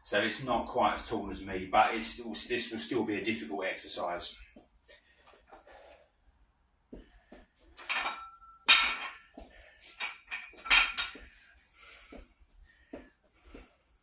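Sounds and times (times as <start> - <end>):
barbell clanking on floor: 7.8 - 9.3, 10.0 - 11.3.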